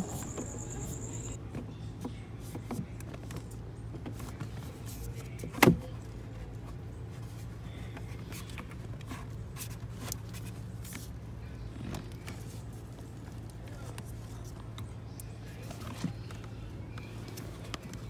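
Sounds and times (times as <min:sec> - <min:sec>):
steady low hum: 0:00.0 - 0:01.4.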